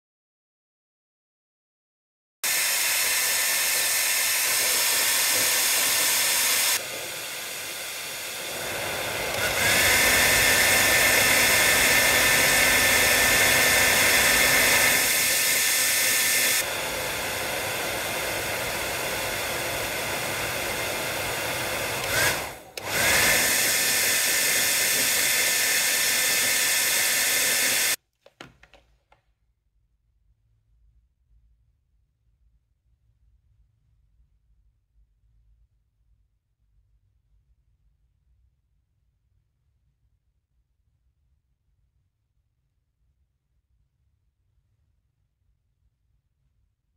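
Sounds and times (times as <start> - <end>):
hair dryer blowing: 2.4 - 28.0.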